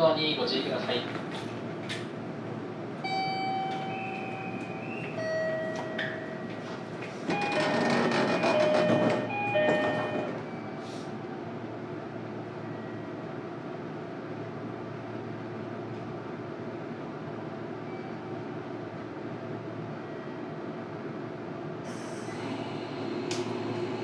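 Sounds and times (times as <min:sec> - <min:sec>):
train running noise: 0:00.0 - 0:12.1, 0:21.6 - 0:24.0
electric train inverter whine: 0:00.0 - 0:24.0
train doors shutting knock: 0:03.1 - 0:10.5.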